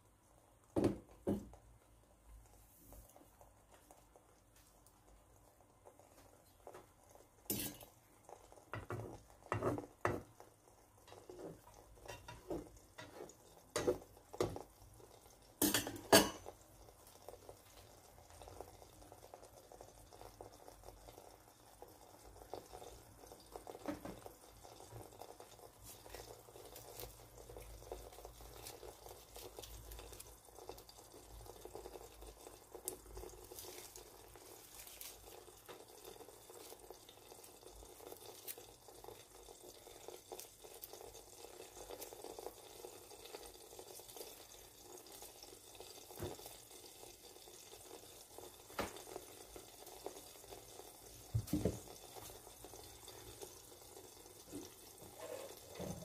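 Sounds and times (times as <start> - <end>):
eggs sizzling in a frying pan: 0.0 - 56.0
kitchenware clinking and clattering: 7.5 - 8.0, 8.8 - 10.3, 11.1 - 14.6, 15.6 - 16.5, 54.6 - 56.0.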